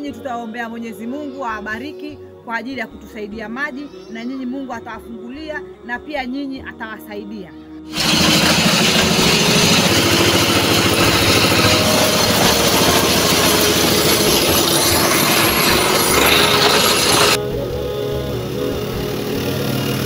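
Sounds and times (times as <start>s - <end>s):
drilling rig engine clatter: 7.9s - 17.4s.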